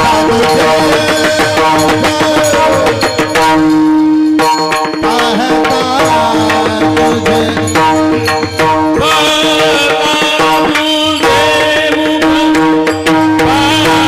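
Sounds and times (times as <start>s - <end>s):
barrel drum beat: 0.0s - 14.0s
men singing into microphones: 0.0s - 14.0s
small hand cymbals: 0.0s - 14.0s.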